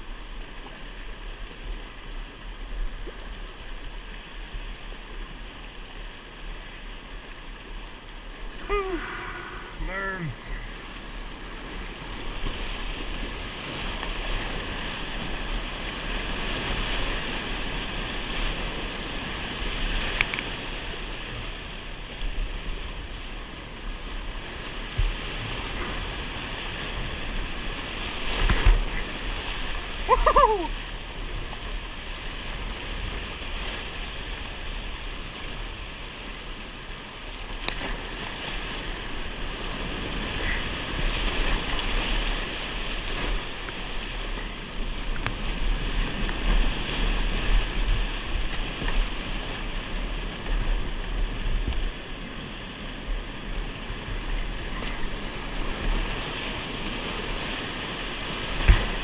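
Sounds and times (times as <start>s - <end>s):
whitewater rushing: 8.4s - 12.9s, 25.3s - 31.4s
sharp splashes and knocks: 28.2s - 29.0s, 58.4s - 59.0s.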